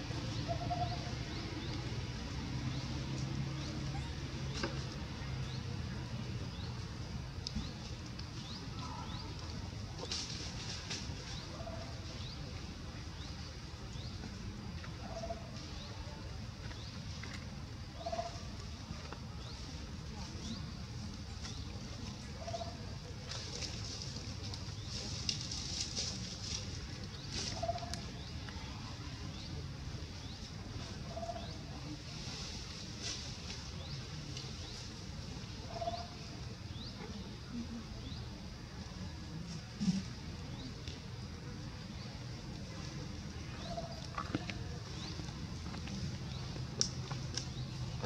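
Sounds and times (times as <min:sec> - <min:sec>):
small birds chirping: 0:00.0 - 0:48.0.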